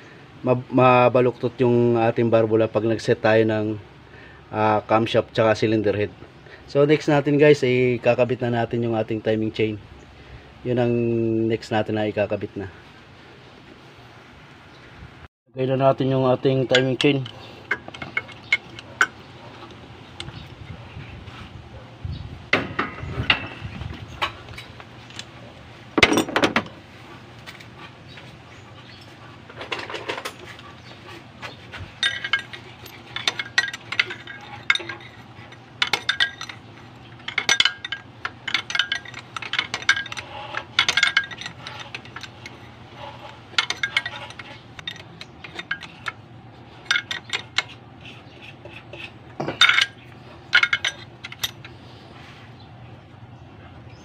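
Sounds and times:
metal chain and tool clinking: 16.6s - 20.5s, 28.9s - 52.0s.

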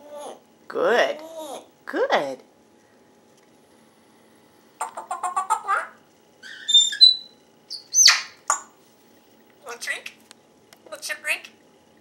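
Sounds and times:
parrot squawk: 4.8s - 8.6s
parrot whistling: 5.2s - 8.7s.

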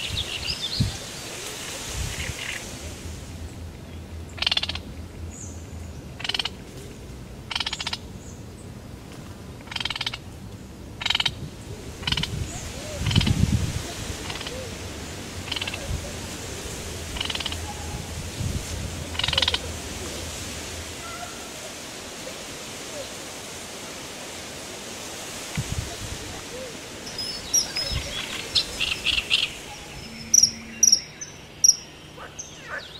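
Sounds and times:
frogs rattling calls: 4.2s - 5.0s, 6.0s - 6.7s, 7.4s - 8.3s, 9.6s - 10.3s, 11.0s - 23.4s, 26.9s - 32.9s.

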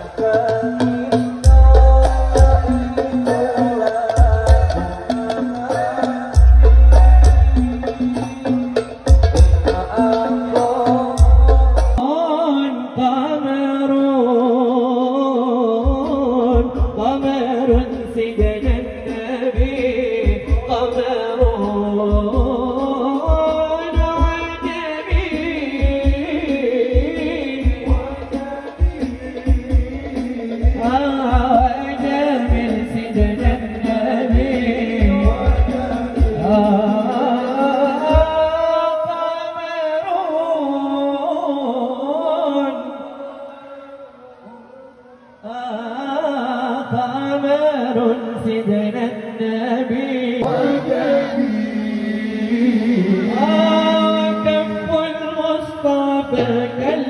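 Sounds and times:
devotional singing: 0.0s - 8.5s, 9.4s - 57.0s
low drum beat: 0.0s - 12.0s, 15.8s - 38.7s
men chanting through a pa: 50.4s - 54.8s.

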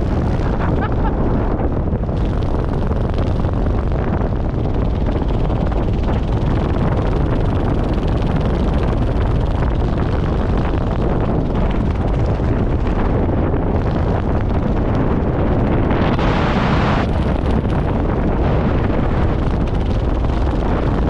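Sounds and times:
wind rushing over microphone: 0.0s - 21.0s.

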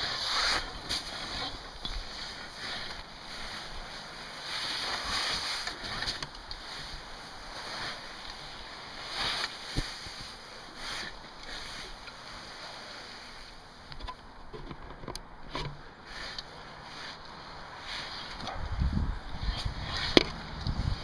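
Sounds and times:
roof rake cutting snow: 0.0s - 13.5s
snow sliding off roof: 0.0s - 13.9s, 15.9s - 21.0s.

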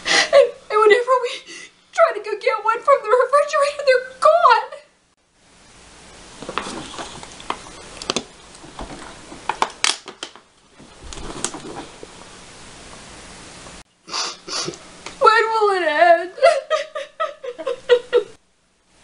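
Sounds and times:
bedding rustling: 6.3s - 9.8s, 10.7s - 12.4s
plastic bottles crinkling: 6.4s - 12.0s.

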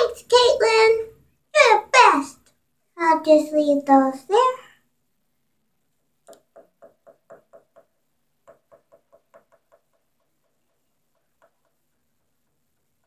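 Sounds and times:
plastic doll tapping on porcelain: 6.3s - 11.8s.

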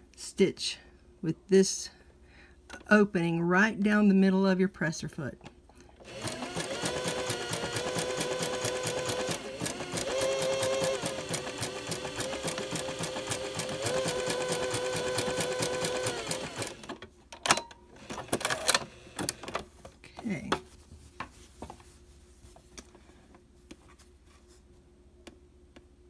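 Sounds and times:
sewing machine motor whine: 6.0s - 17.0s.

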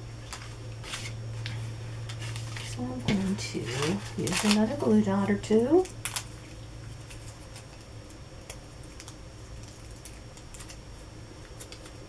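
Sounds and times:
card stock handling: 0.2s - 5.1s.

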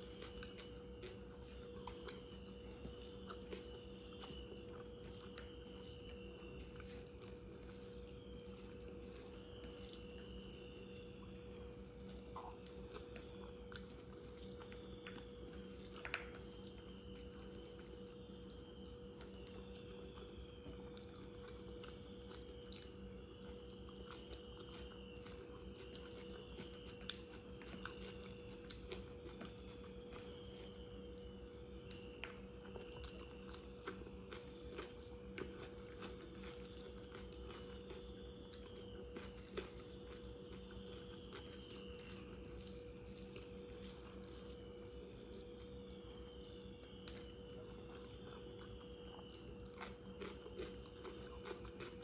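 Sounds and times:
fingers mixing rice: 0.0s - 11.4s, 31.4s - 52.0s
chewing: 0.0s - 52.0s
steady hum: 0.0s - 52.0s.

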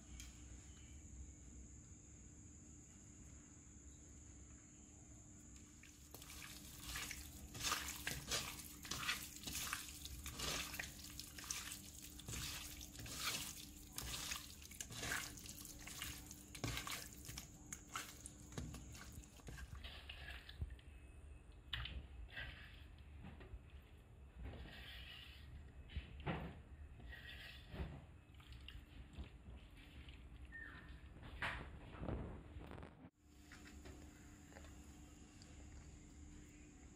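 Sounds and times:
wet squelches of marinated meat: 5.6s - 20.8s.

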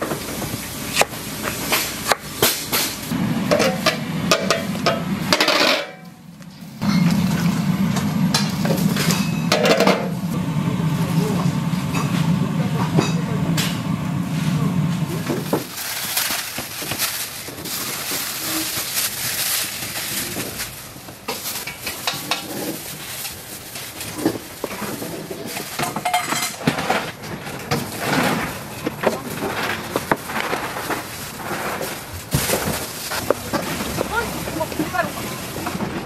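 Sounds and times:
plastic bag rustling: 15.4s - 25.8s, 27.0s - 36.0s.

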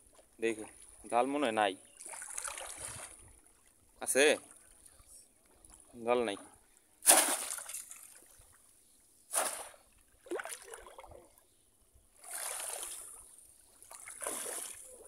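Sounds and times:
floodwater splashing: 2.0s - 3.7s, 7.0s - 8.5s, 9.3s - 11.3s, 12.2s - 15.0s.

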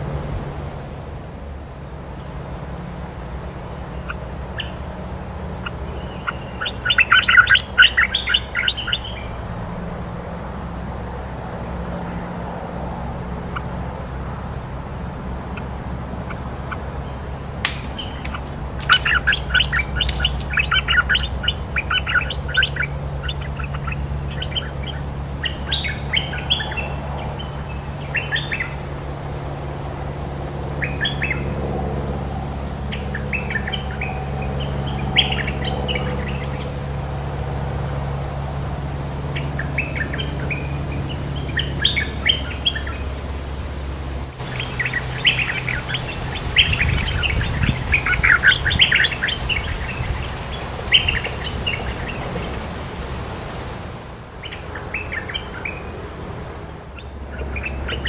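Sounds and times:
bulbuls chirping: 3.4s - 10.7s, 13.0s - 29.1s, 39.3s - 43.5s, 44.3s - 58.0s.

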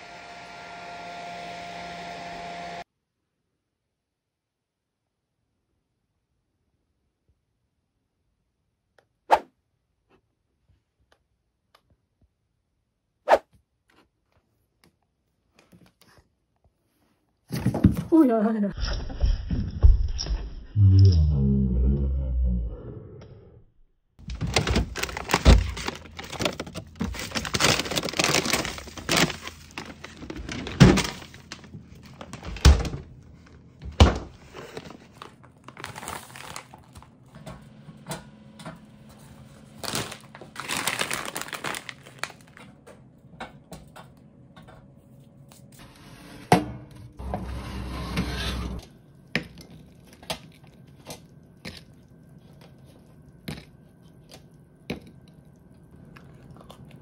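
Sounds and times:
rustling and crinkling: 24.2s - 37.5s, 39.1s - 43.1s.

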